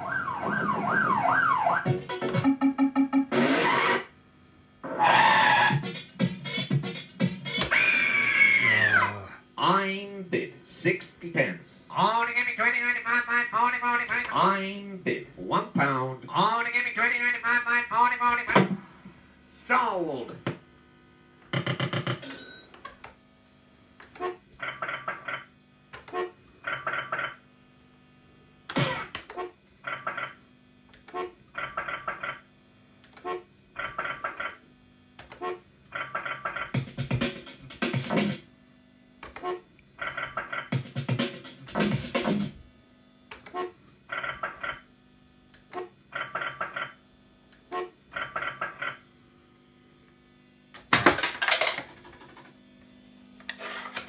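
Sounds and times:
fruit machine bleeping: 0:00.0 - 0:04.1, 0:21.6 - 0:22.8.

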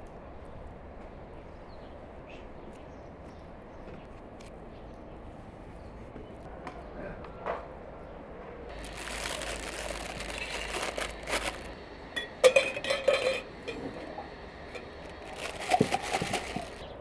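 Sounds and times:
plastic bag crinkling: 0:08.7 - 0:12.0, 0:14.7 - 0:16.9
spoon scraping inside jar: 0:12.4 - 0:13.9.

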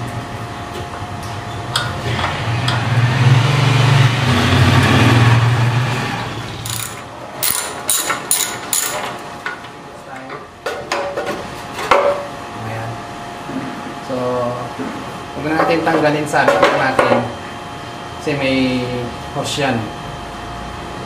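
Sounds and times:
screwdriver clicking on metal parts: 0:06.7 - 0:09.0.

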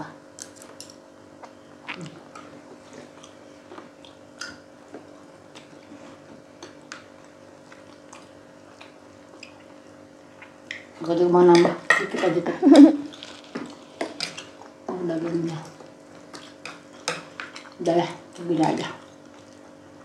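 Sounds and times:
people chewing: 0:01.4 - 0:09.8, 0:18.8 - 0:20.0.

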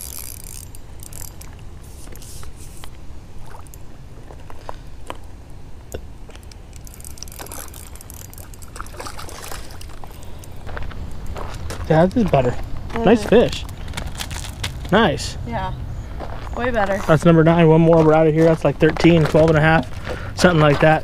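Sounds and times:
steady low rumble: 0:00.0 - 0:21.0
water splashing and trickling: 0:06.4 - 0:10.8.

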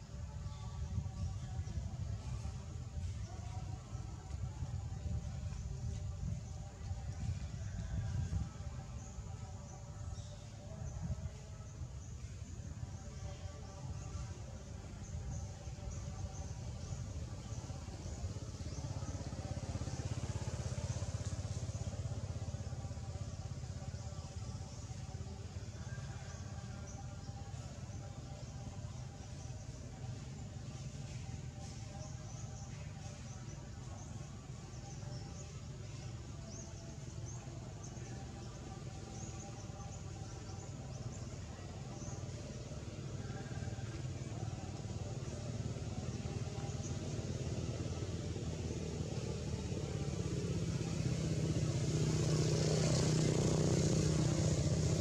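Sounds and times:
steady low rumble: 0:00.0 - 0:43.7
engine running with low throb: 0:00.0 - 0:55.0.

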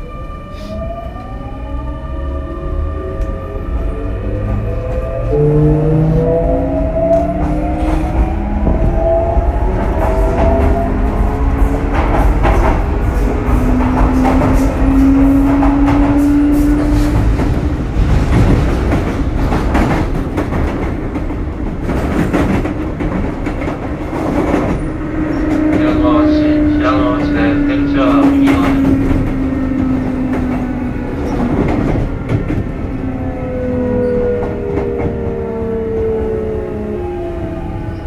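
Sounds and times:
train wheels rumbling: 0:00.6 - 0:38.0
rail joints clattering: 0:09.6 - 0:32.8
electric train inverter whine: 0:24.6 - 0:38.0.

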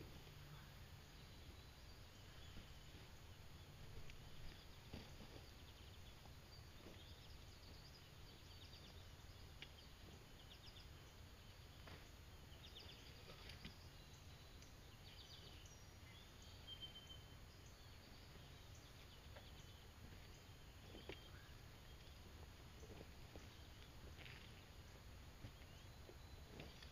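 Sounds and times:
small birds chirping: 0:00.0 - 0:26.9.

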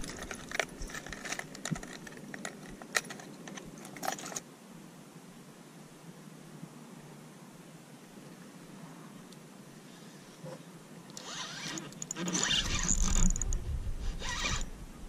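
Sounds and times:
carried gear clicking and rattling: 0:00.0 - 0:04.4, 0:11.3 - 0:13.6
faint outdoor hiss: 0:00.0 - 0:15.0.

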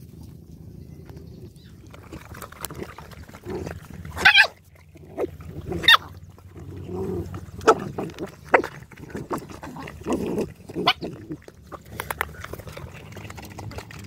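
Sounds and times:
dogs snuffling and lapping: 0:00.0 - 0:14.0
dog high cries: 0:04.2 - 0:04.6.

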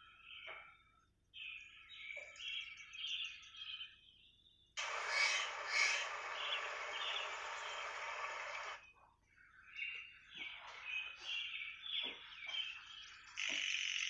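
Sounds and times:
birds chirping: 0:00.0 - 0:14.0
steady rushing hiss: 0:04.8 - 0:08.8.

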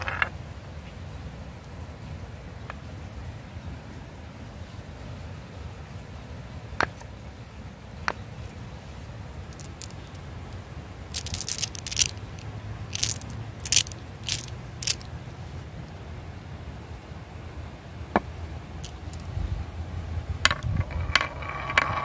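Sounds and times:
marbles clicking together: 0:09.5 - 0:15.1, 0:18.8 - 0:19.3.

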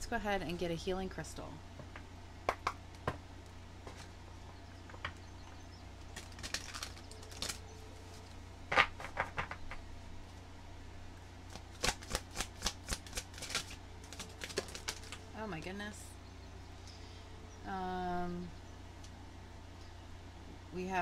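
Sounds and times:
cards being shuffled: 0:06.1 - 0:09.7, 0:11.5 - 0:15.3.

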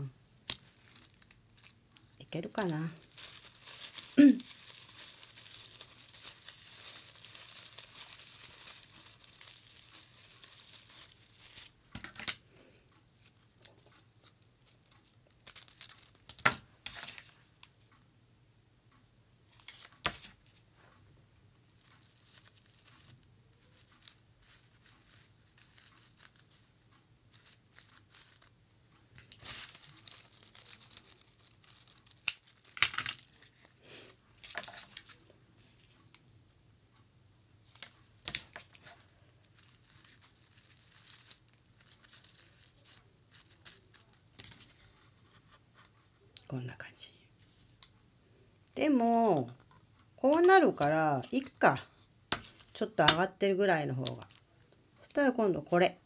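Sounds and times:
dry flowers crackling: 0:00.0 - 0:16.4, 0:21.7 - 0:28.5, 0:29.1 - 0:36.6, 0:37.4 - 0:44.8, 0:50.2 - 0:55.5.

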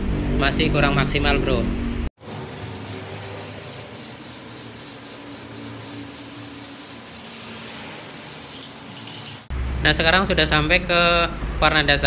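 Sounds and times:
spray paint can hissing: 0:02.2 - 0:09.5.

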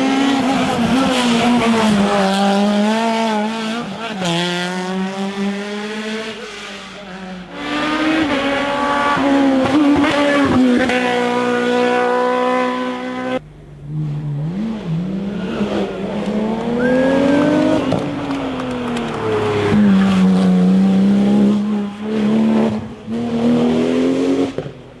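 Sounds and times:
race car engines revving: 0:00.0 - 0:25.0.

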